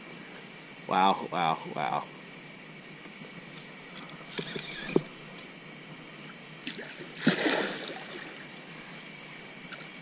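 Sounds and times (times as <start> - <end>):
night insects chorus: 0.0 - 10.0
fishing reel clicks: 4.3 - 5.0
water splash: 6.6 - 8.4.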